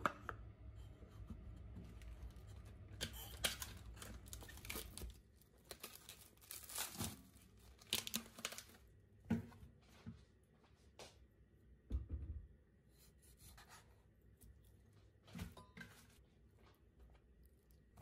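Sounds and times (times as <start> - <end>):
plastic wrap crinkling: 3.2 - 8.9.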